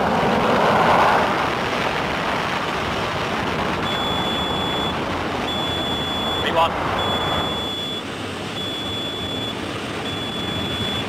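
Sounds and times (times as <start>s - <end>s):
jet engines roaring at takeoff: 0.0s - 11.0s
high electronic beep: 3.8s - 11.0s.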